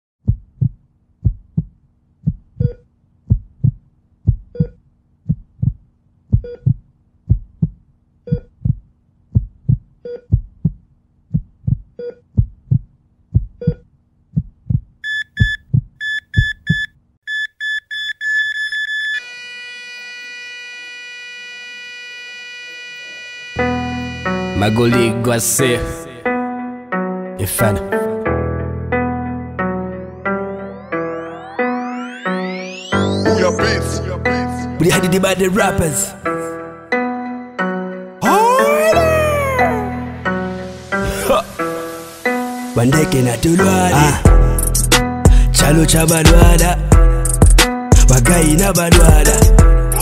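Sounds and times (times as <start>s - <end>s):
heartbeat thumping: 0.2s - 16.9s
heart monitor flatline tone: 4.3s - 4.8s, 6.3s - 7.4s, 8.3s - 8.8s, 13.4s - 13.8s, 15.0s - 25.1s
rapid electronic beeps: 15.0s - 25.2s, 30.8s - 34.1s.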